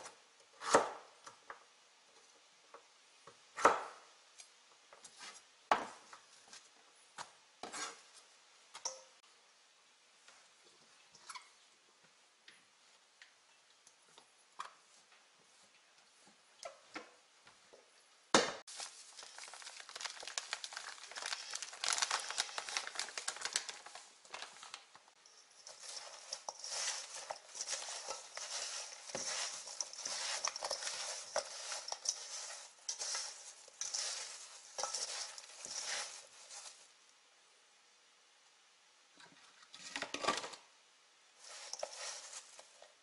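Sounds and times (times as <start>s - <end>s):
sugar and fruit slices rustling: 18.7s - 37.0s, 41.4s - 43.0s.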